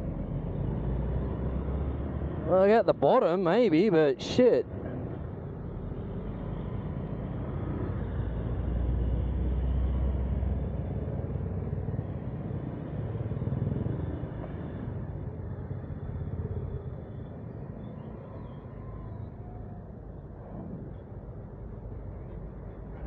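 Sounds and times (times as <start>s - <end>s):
low rumble of engines: 0.0s - 23.0s
road noise: 0.0s - 23.0s.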